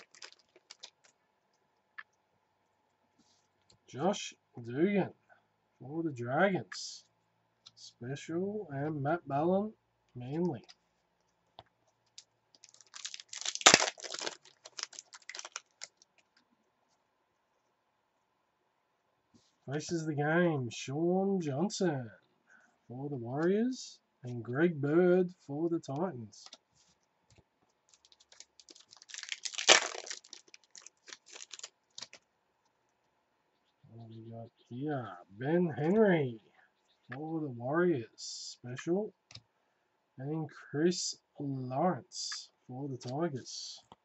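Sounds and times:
wrapper tearing and crinkling: 0:00.0 - 0:01.2, 0:12.6 - 0:16.2, 0:27.9 - 0:32.2.

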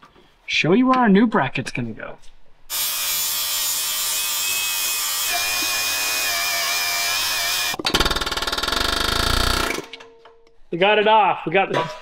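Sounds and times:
angle grinder grinding steel: 0:02.7 - 0:07.8
pneumatic air hammer rattling: 0:02.7 - 0:10.1.

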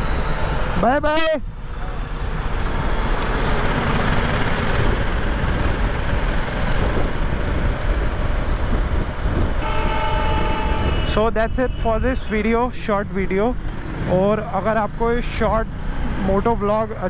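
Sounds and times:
road noise: 0:00.0 - 0:17.0
wind rush: 0:04.0 - 0:13.6.

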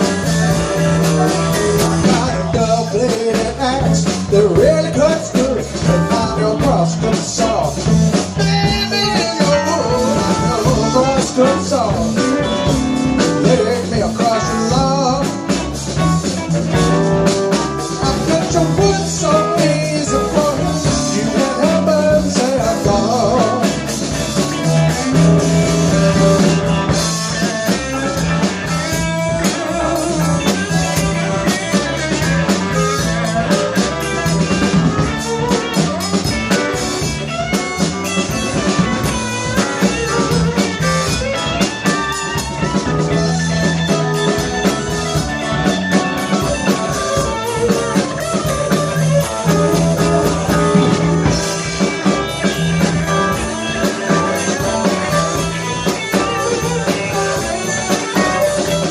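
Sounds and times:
blues band playing: 0:00.0 - 0:58.9
drum kit: 0:00.0 - 0:58.9
electric guitar: 0:00.0 - 0:58.9
repeating bass line: 0:00.0 - 0:58.9.

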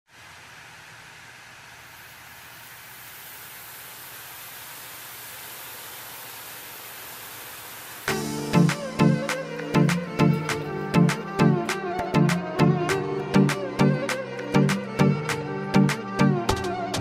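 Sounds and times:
oil sizzling: 0:01.6 - 0:10.8
batter dripping into hot oil: 0:01.9 - 0:08.1
music with plucked strokes: 0:08.1 - 0:17.0.

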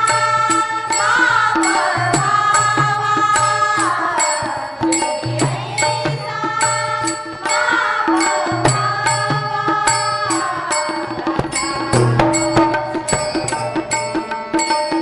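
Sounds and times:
women singing in unison: 0:00.0 - 0:13.0
hand cymbals struck: 0:00.0 - 0:15.0.

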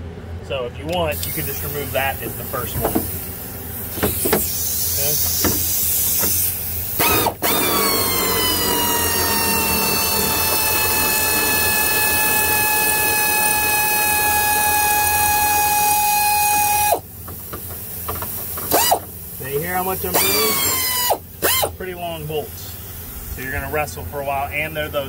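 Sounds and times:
power tool motor whine: 0:05.4 - 0:17.1, 0:18.7 - 0:19.1, 0:20.0 - 0:21.8.

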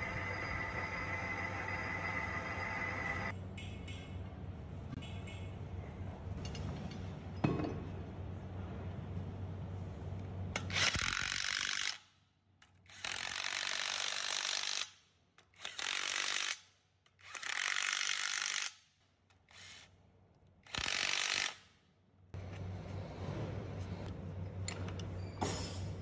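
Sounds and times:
steady low hum: 0:00.0 - 0:10.6
cordless impact wrench: 0:10.6 - 0:12.0, 0:12.9 - 0:15.0, 0:15.6 - 0:16.6, 0:17.2 - 0:18.8, 0:20.7 - 0:21.6.

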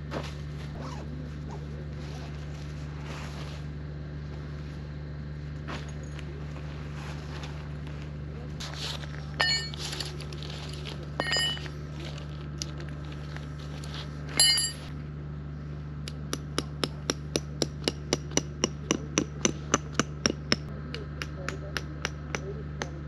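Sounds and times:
metal tent stakes clinking: 0:09.3 - 0:11.8, 0:14.3 - 0:14.9
hammering tent stake into ground: 0:16.1 - 0:23.0.

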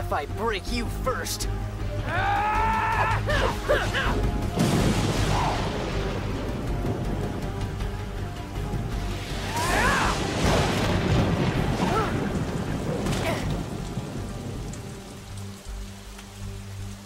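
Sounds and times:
dramatic music score: 0:00.0 - 0:17.0
heavy rain: 0:00.0 - 0:17.0
short rising yells: 0:02.0 - 0:04.2, 0:09.4 - 0:10.3.

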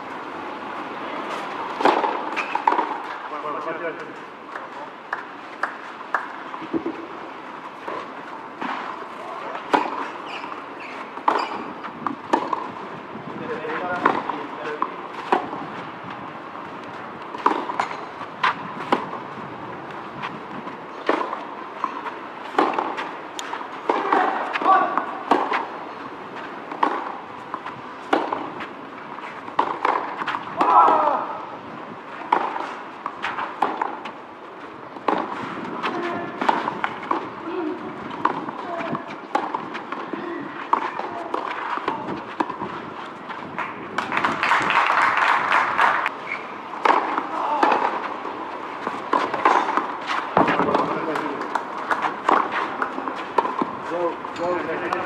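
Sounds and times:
tennis ball hit by rackets: 0:01.7 - 0:03.2, 0:07.8 - 0:10.5, 0:11.2 - 0:12.8, 0:13.6 - 0:15.6, 0:17.2 - 0:19.2, 0:20.2 - 0:25.7, 0:26.7 - 0:28.7, 0:29.4 - 0:31.4, 0:32.1 - 0:34.2, 0:34.9 - 0:42.8, 0:46.8 - 0:48.1, 0:48.8 - 0:55.0
spectator applause: 0:44.1 - 0:46.1.

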